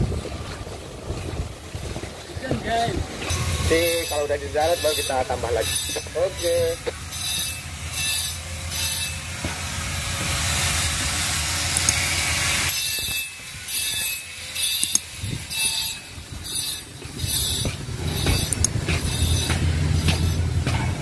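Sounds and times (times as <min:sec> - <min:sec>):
machinery low rumble: 0:00.0 - 0:12.8, 0:14.8 - 0:21.0
regular mechanical clatter: 0:10.4 - 0:21.0.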